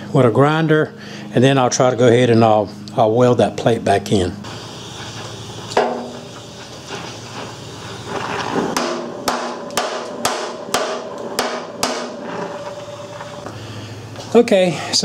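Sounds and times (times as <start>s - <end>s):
torch flame hissing: 4.4s - 14.3s
hammer tapping on metal: 8.8s - 12.2s.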